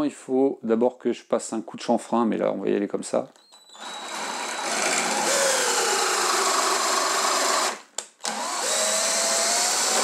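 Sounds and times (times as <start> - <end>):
cordless drill whining: 3.4 - 10.0.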